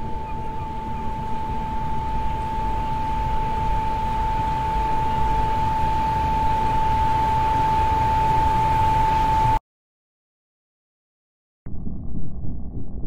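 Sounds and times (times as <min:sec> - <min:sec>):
low rumbling noise: 0:11.7 - 0:13.0.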